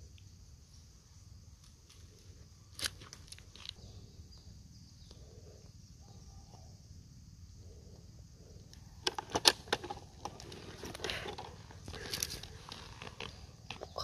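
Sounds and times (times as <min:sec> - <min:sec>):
low outdoor background: 0:00.0 - 0:14.0
dry leaves and twigs crackling: 0:00.8 - 0:03.9, 0:08.7 - 0:14.0.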